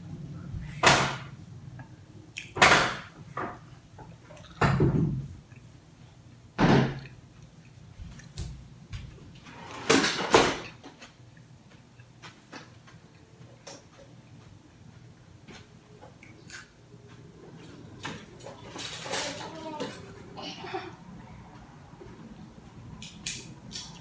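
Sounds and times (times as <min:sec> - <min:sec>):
drawer contents banging and clattering: 0:18.0 - 0:20.3.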